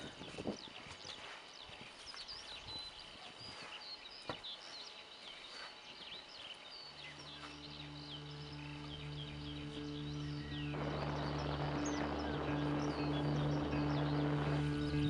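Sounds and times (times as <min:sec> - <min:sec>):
rural field ambience: 0:00.0 - 0:15.0
songbirds chirping: 0:00.0 - 0:15.0
low musical chord: 0:06.9 - 0:15.0.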